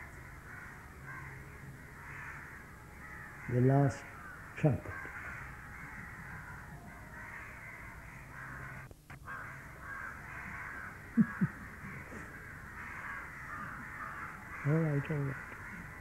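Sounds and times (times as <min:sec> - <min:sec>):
crows cawing in chorus: 0:00.0 - 0:16.0.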